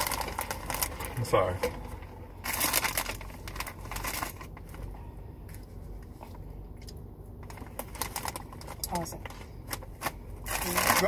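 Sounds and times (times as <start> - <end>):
plastic snack bag crinkling: 0.0 - 4.9, 7.4 - 8.9, 9.6 - 11.0.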